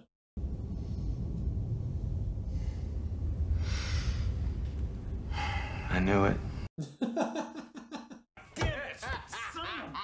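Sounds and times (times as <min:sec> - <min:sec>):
spaceship interior hum: 0:00.4 - 0:06.7
breathy exhales: 0:02.4 - 0:04.6, 0:05.3 - 0:05.9.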